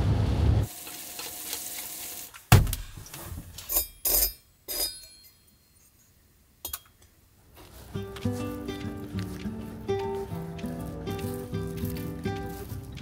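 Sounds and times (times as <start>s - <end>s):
road and rain noise in vehicle: 0.0s - 0.7s.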